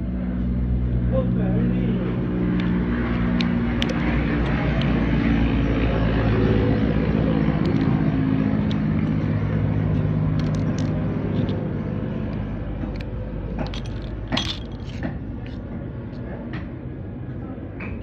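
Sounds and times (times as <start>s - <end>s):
motor drone with low hum: 0.0s - 18.0s
metallic clicks of watch parts: 8.6s - 11.6s, 12.3s - 15.6s.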